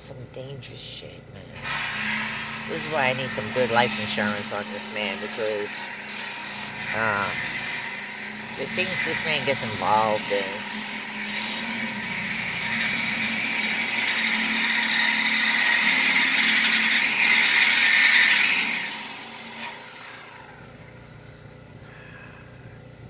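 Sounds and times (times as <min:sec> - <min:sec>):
power saw cutting steel: 0:01.6 - 0:22.2
low hum: 0:20.2 - 0:23.0.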